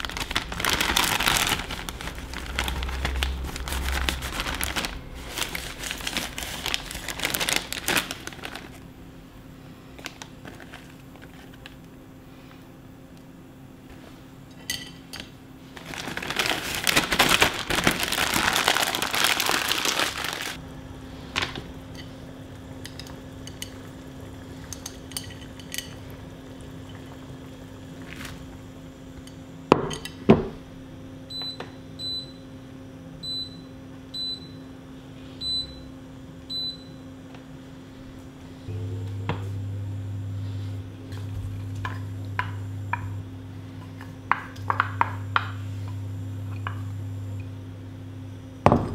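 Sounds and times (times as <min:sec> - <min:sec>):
plastic bag crinkling: 0:00.0 - 0:08.9, 0:10.0 - 0:11.8, 0:15.7 - 0:20.6
steady low hum: 0:00.0 - 0:48.9.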